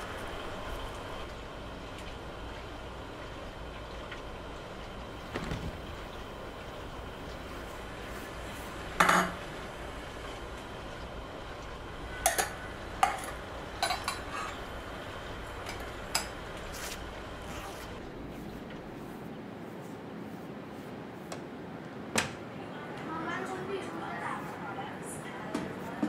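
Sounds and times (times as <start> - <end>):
steady low hiss: 0.0 - 3.2.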